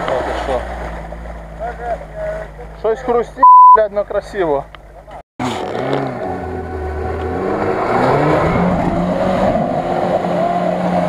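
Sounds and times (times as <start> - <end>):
car engine revving hard: 5.4 - 11.0.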